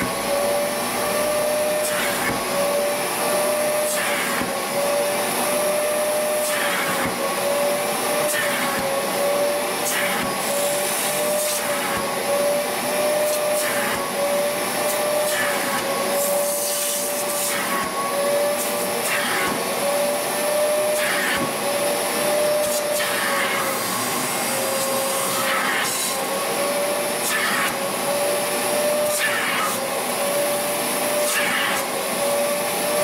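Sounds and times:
upholstery vacuum motor whine: 0:00.0 - 0:33.0.

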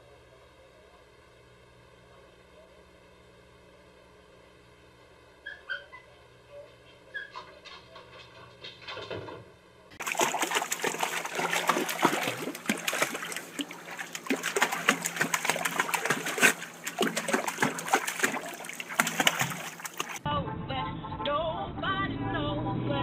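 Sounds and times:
dog splashing in water: 0:10.0 - 0:20.2.

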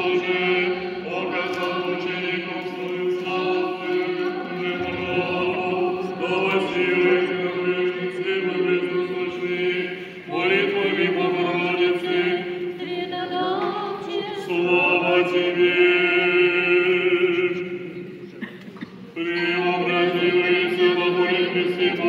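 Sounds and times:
group chanting: 0:00.0 - 0:17.6.

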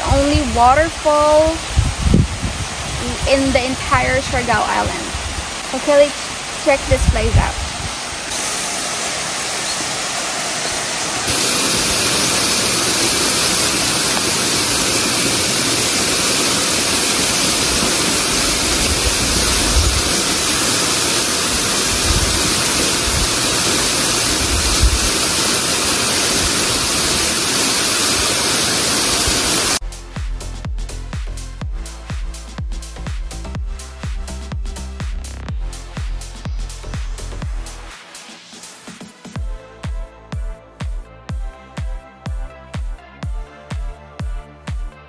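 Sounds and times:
waterfall rushing: 0:00.0 - 0:29.8.

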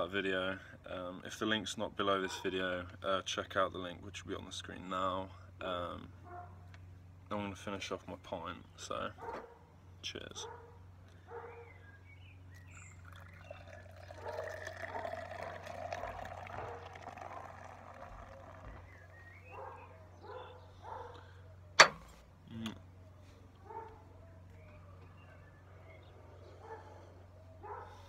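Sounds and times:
beer pouring into glass: 0:12.9 - 0:19.1.

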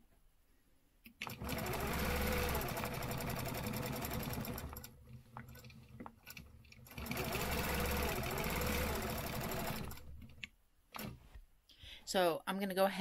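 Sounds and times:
quilting machine stitching: 0:01.2 - 0:11.2.

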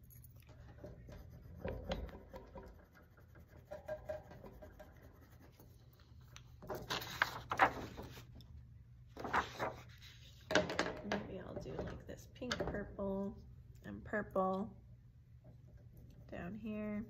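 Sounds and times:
pencil scratching on paper: 0:00.9 - 0:05.8.

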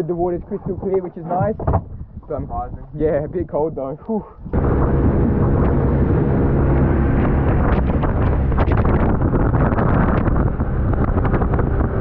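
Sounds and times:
wind buffeting microphone: 0:00.0 - 0:12.0
outboard motor drone: 0:04.5 - 0:12.0.

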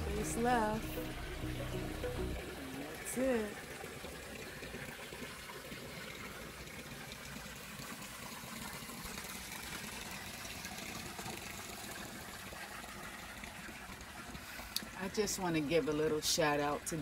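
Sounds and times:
water trickling into pond: 0:00.0 - 0:17.0.

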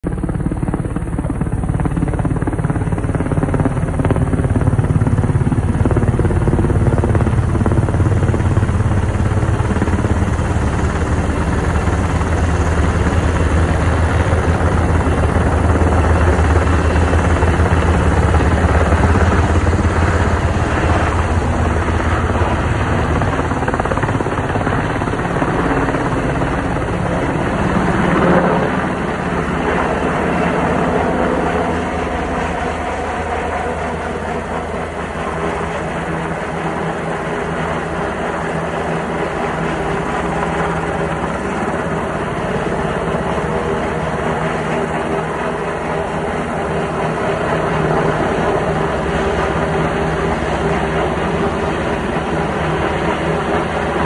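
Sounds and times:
helicopter engine drone: 0:00.0 - 0:54.0
helicopter rotor beat: 0:00.0 - 0:54.0.

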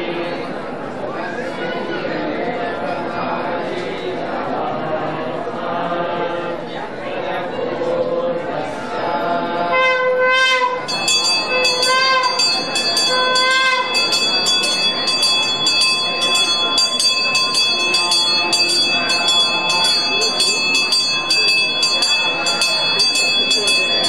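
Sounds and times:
temple bell rung rapidly: 0:09.8 - 0:24.0.

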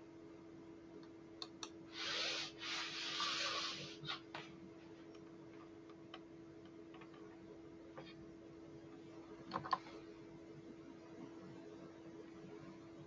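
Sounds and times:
faint electrical hum: 0:00.0 - 0:13.0
soft hissing rush: 0:01.9 - 0:04.5.

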